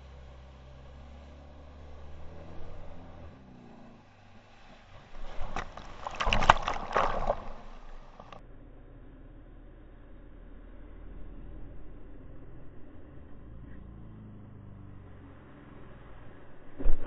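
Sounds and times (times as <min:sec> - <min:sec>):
crashing churning water: 0:04.5 - 0:08.4.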